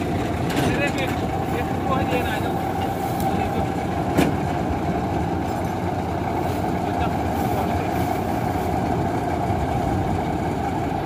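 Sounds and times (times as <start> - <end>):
combine harvester engine running: 0.0 - 11.0.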